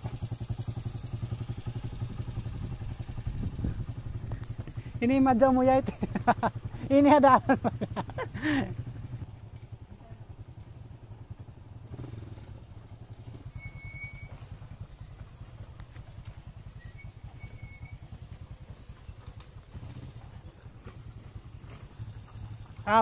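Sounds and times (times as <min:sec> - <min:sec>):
small motorcycle engines: 0:00.0 - 0:23.0
short high whistles: 0:13.4 - 0:14.5, 0:16.8 - 0:18.1.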